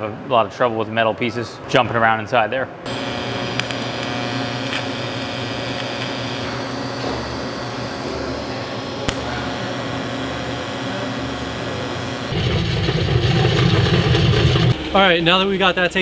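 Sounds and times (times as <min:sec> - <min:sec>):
welding arc buzzing: 0:02.9 - 0:15.0.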